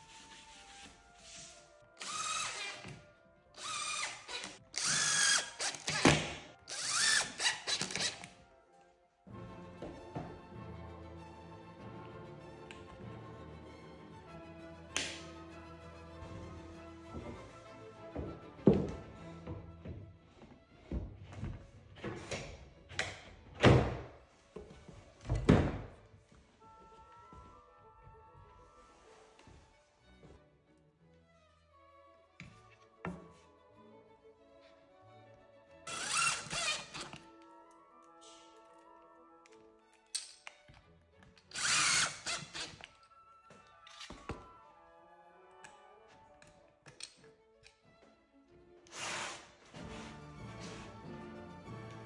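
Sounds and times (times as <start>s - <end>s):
background music: 0.0s - 52.0s
cordless drill driving screws: 2.0s - 3.0s, 3.6s - 8.3s, 35.9s - 37.2s, 41.5s - 42.9s, 48.9s - 49.5s.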